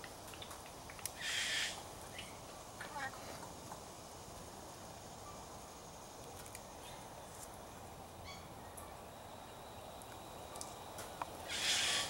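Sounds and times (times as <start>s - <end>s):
parrot squawk: 11.5s - 12.0s.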